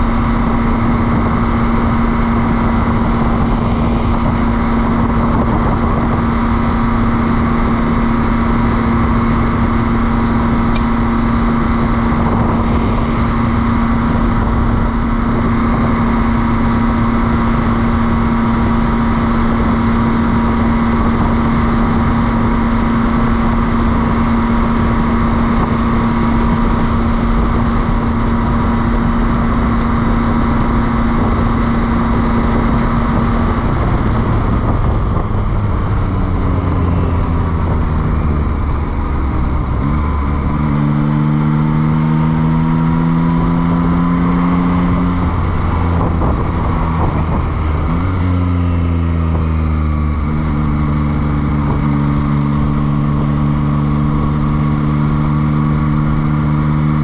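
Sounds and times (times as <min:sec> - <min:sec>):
motorcycle engine running: 0:00.0 - 0:57.0
wind noise: 0:00.0 - 0:57.0.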